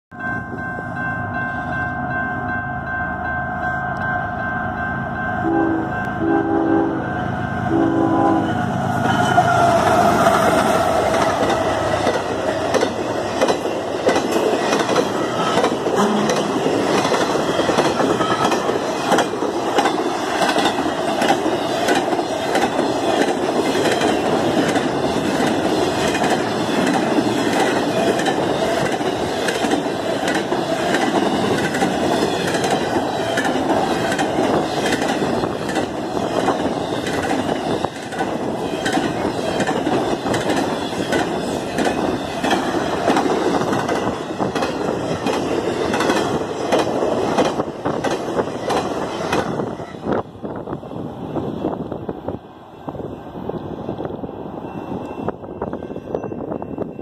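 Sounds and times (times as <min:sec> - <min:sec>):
freight train rushing past: 0:00.1 - 0:57.0
wheels clacking over rails: 0:09.7 - 0:49.7.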